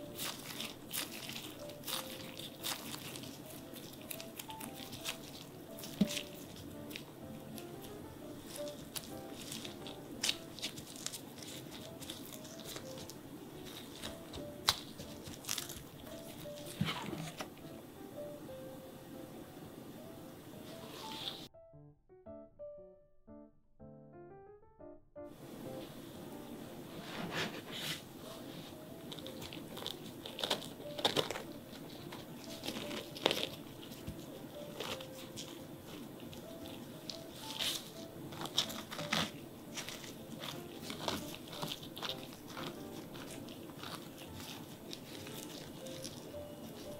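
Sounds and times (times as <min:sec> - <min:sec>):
parchment paper rustling: 0:00.0 - 0:17.6, 0:27.0 - 0:46.9
soft background music: 0:00.0 - 0:46.9.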